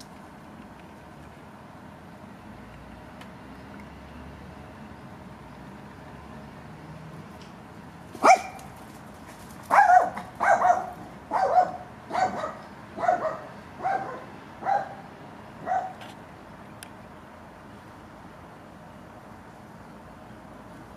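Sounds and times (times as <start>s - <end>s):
dog barking: 8.2s - 8.7s, 9.7s - 15.0s, 15.6s - 16.0s.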